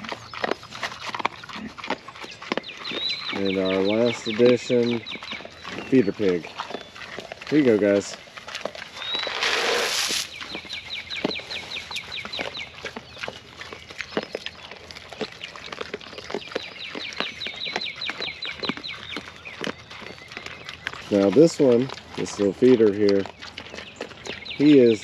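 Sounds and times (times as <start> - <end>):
pigs crunching feed: 0.0 - 25.0
bird chirping rapidly: 1.3 - 25.0
short rush of noise: 9.3 - 10.3.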